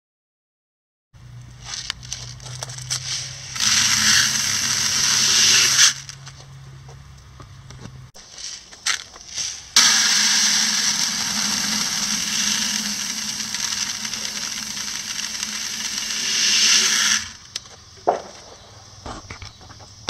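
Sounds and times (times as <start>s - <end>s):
grain pouring: 1.7s - 6.2s, 8.2s - 17.5s.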